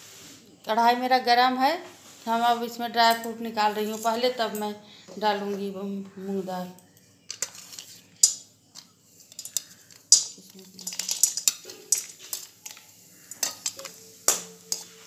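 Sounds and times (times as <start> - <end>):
utensils clinking against metal pan: 3.0 - 4.8, 7.3 - 15.0.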